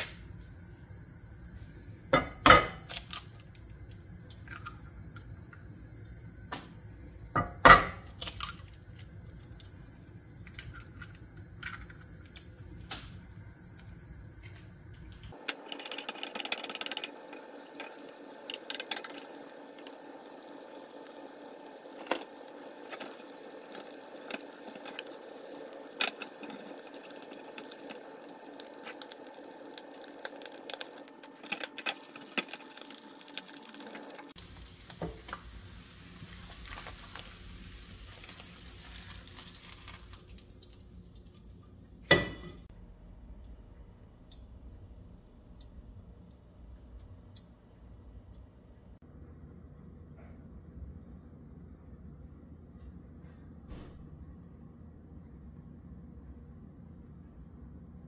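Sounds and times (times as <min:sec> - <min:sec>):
eggs sizzling in oil: 0:00.0 - 0:42.7.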